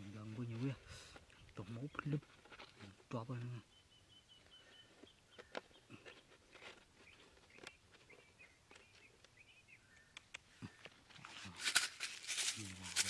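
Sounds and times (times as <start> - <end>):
faint bird chirps: 2.8 - 11.6.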